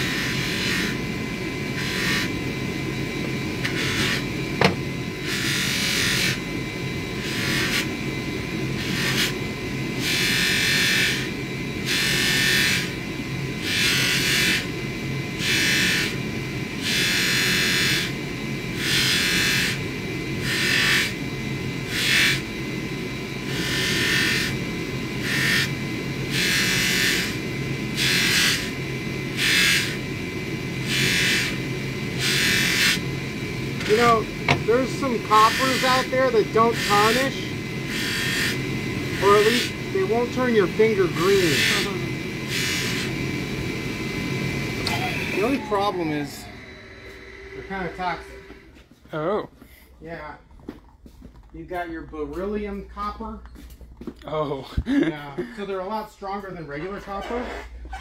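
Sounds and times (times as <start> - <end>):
metal ring rubbing on buffing wheel: 0.0 - 1.0, 1.7 - 2.4, 3.6 - 4.3, 5.2 - 6.5, 7.2 - 7.9, 8.8 - 9.4, 10.0 - 13.0, 13.6 - 14.7, 20.4 - 21.2, 21.9 - 22.4, 23.5 - 24.6, 28.0 - 28.7, 30.8 - 31.6, 32.2 - 33.0, 33.8 - 43.1, 56.6 - 58.0
polishing motor humming: 0.0 - 49.0.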